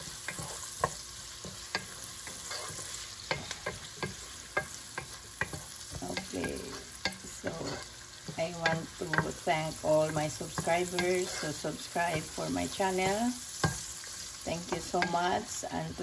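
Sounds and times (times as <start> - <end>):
food sizzling in oil: 0.0 - 16.0
wooden spatula clicking and scraping: 0.0 - 16.0.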